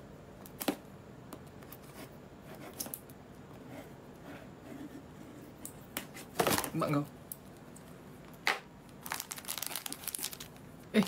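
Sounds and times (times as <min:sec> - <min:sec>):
faint packaging rustling: 0:08.9 - 0:11.0.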